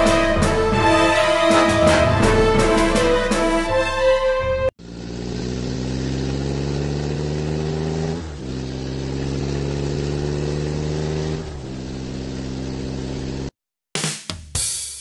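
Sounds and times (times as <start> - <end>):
truck engine running: 4.8 - 13.5.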